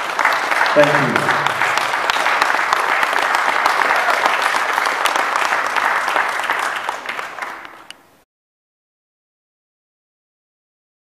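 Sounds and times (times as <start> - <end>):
congregation applauding: 0.0 - 8.0.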